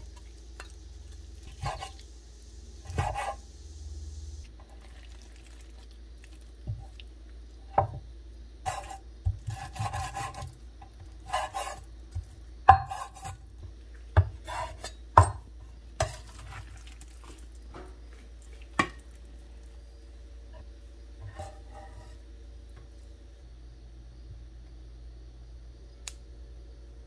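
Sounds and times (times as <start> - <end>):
meat scraping across board: 2.9 - 3.4, 8.7 - 10.6, 11.2 - 11.9, 21.2 - 22.2.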